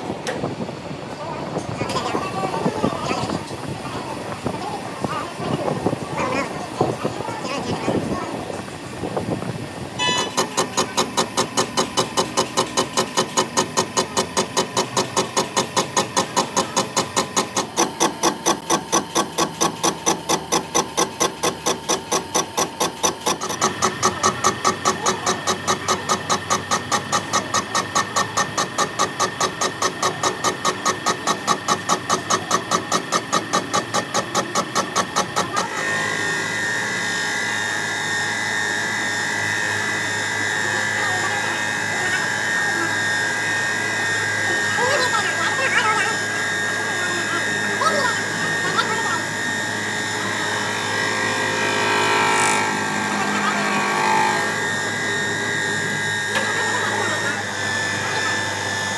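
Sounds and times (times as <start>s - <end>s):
workshop machine pulsing: 0.0s - 58.9s.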